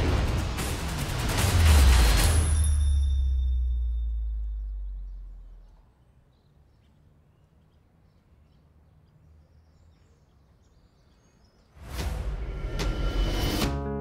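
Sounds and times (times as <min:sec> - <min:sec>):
loud rushing whoosh: 0:00.0 - 0:03.5
music: 0:00.0 - 0:04.2, 0:11.8 - 0:14.0.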